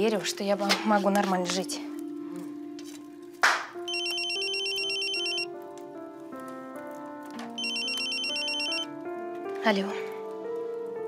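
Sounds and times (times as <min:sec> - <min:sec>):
soft background music: 0:00.0 - 0:11.0
electronic phone ringtone trill: 0:03.9 - 0:05.5, 0:07.6 - 0:08.9.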